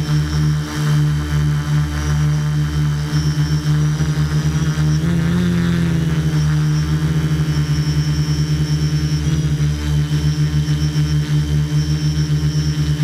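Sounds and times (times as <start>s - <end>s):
drone propellers buzzing: 0.0s - 13.0s.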